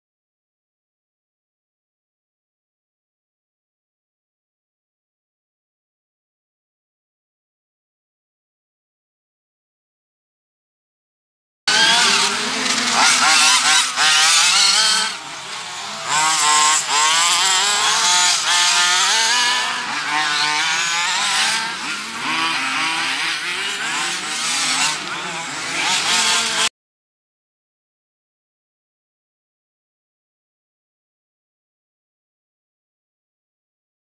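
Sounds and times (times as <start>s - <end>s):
radio-controlled buggy engines racing: 11.7s - 26.7s.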